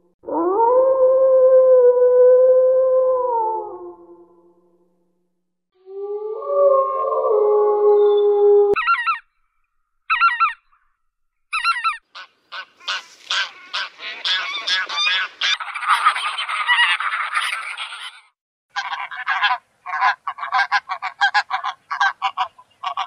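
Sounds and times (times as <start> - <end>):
wolf howling: 0.2 - 4.5, 5.8 - 8.8
geese honking: 11.5 - 18.2, 18.8 - 23.0.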